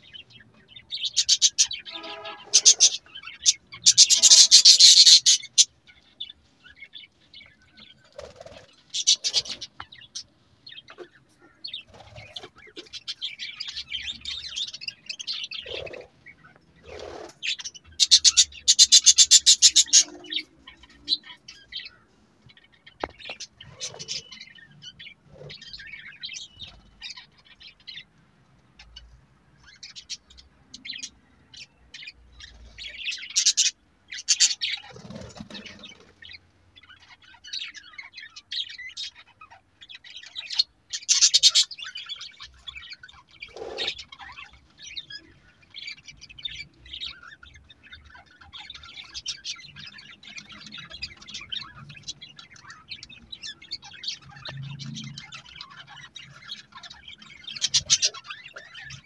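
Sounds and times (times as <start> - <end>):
budgerigars chattering: 0.0 - 28.0, 28.8 - 59.0.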